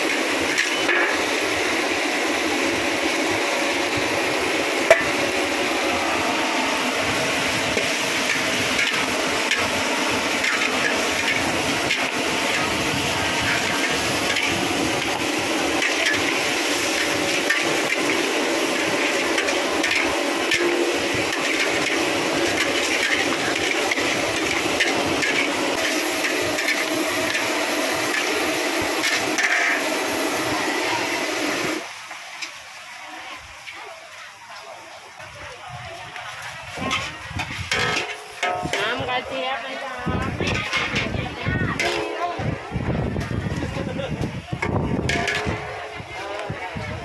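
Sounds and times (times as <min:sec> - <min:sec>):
metal spatulas scraping a wok: 0:00.0 - 0:02.4, 0:06.8 - 0:31.8, 0:36.7 - 0:39.4, 0:40.1 - 0:42.4, 0:44.6 - 0:45.9
hiss of frying: 0:00.0 - 0:47.0.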